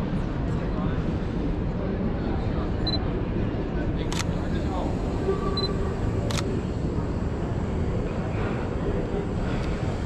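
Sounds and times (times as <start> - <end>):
street traffic rumble: 3.3 - 10.0
camera shutter click: 4.1 - 4.4, 6.3 - 6.5.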